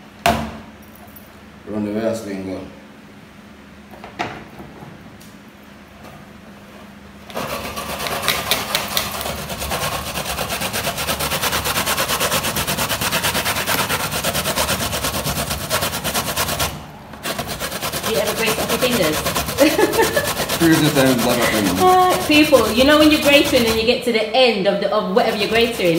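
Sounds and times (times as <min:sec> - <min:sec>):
coconut rasping on a grater: 0:07.3 - 0:24.1, 0:25.2 - 0:25.9.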